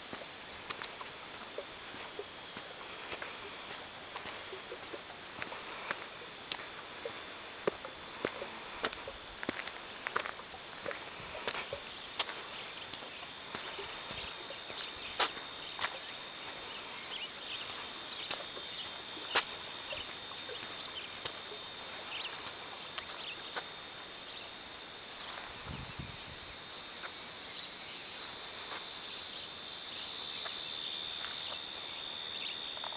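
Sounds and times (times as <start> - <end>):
footsteps on dirt path: 0.0 - 23.8, 30.4 - 32.9
high-pitched insect drone: 0.0 - 32.9.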